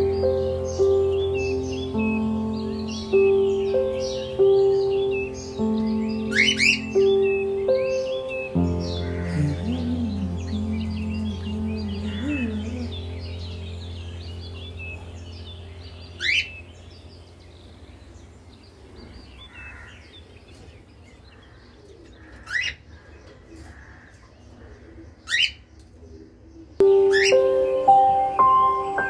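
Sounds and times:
background music: 0.0 - 16.5, 26.8 - 29.0
chiming music: 0.0 - 16.7, 26.8 - 29.0
upward-sweeping bird calls: 0.0 - 21.5, 26.8 - 29.0
finches chirping softly: 0.0 - 23.7, 24.8 - 29.0.

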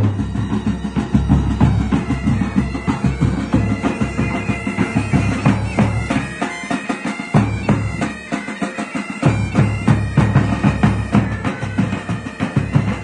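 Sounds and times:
bagpipes playing a tune: 0.0 - 13.0
drums beating: 0.0 - 13.0.

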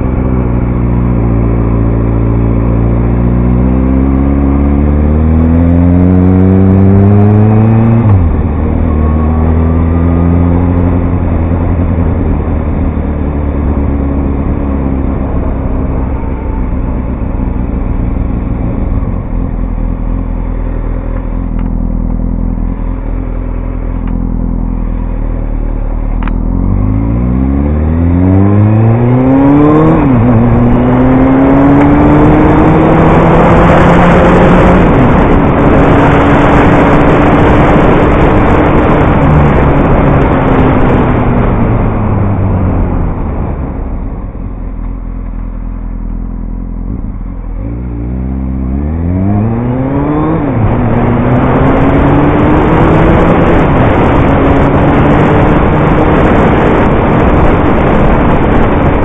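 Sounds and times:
motorcycle engine revving: 0.0 - 59.0
wind rush on microphone: 24.6 - 45.9, 46.8 - 59.0.

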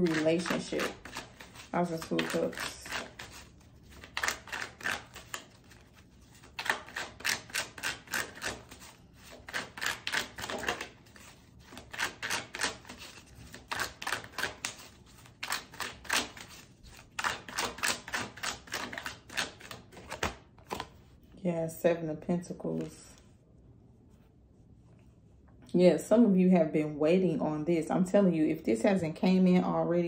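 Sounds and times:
cards being shuffled: 0.0 - 21.2, 22.7 - 23.2.

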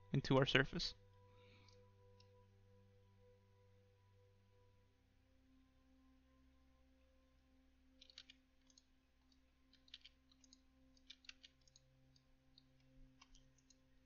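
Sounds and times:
faint low hum: 0.0 - 14.0
computer mouse clicks: 8.0 - 13.9.

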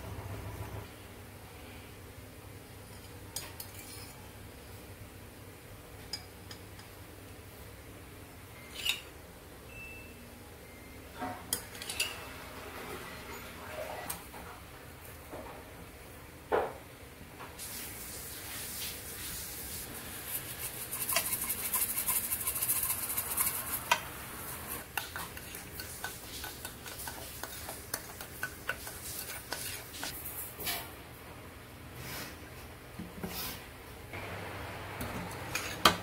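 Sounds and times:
spice shaker hissing: 17.6 - 30.2.

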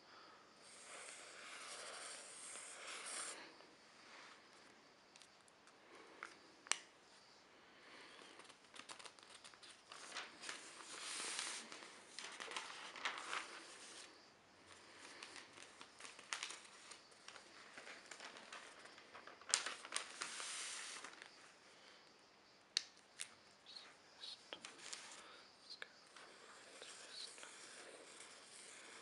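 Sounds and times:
newspaper pages rustling: 8.4 - 14.2, 14.8 - 21.4.

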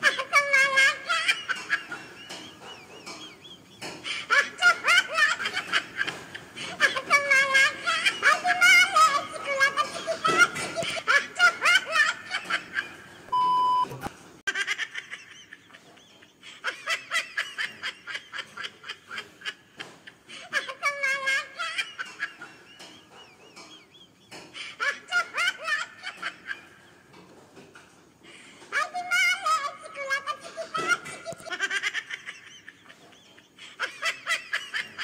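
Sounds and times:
high-pitched laughter: 0.0 - 13.1, 14.5 - 26.9, 28.3 - 35.0
short steady beep: 13.3 - 14.0.

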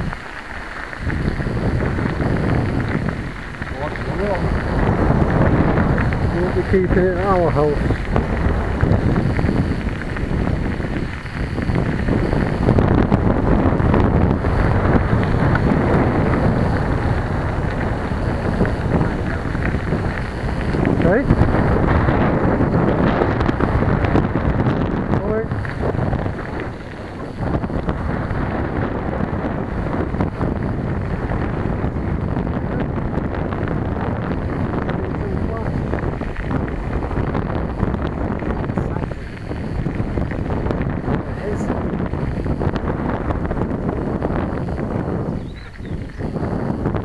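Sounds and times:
bicycle knocks and rattles: 0.0 - 47.0
tyres on gravel: 0.0 - 47.0
wind buffeting microphone: 0.0 - 47.0.

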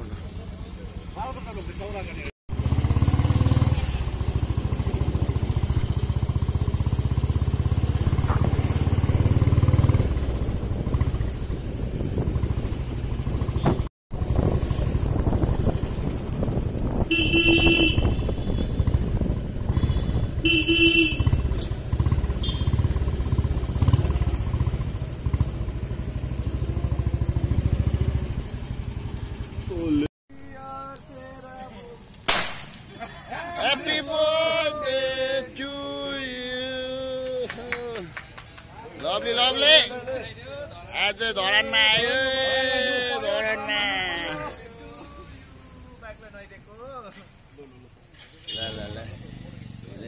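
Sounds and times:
motorcycle engine rumble: 0.0 - 43.1
vehicle horn honking: 17.1 - 18.9, 19.7 - 21.6, 22.3 - 22.9, 48.4 - 49.1.

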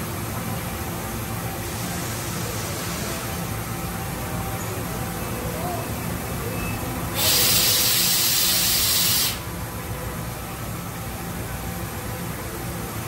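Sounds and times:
compressed air hissing blast: 7.1 - 9.5.

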